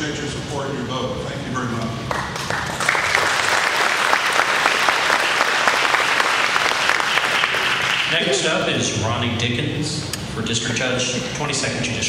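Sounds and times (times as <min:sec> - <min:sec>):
audience applauding: 0:02.1 - 0:08.6.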